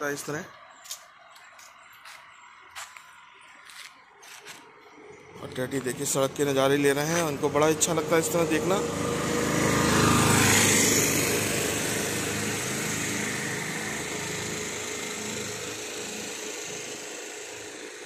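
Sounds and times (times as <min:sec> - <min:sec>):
small vehicle passing by: 0:03.6 - 0:18.0.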